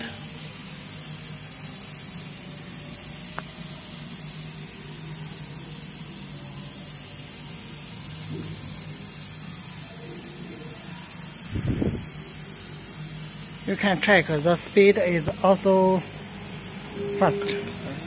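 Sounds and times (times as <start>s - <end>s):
laser cutter hissing: 0.0s - 18.0s
low machine hum: 10.6s - 18.0s.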